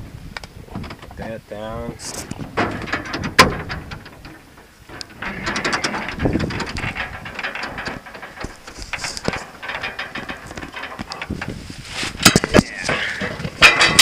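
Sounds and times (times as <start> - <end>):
clothing rubbing on microphone: 11.3 - 13.6.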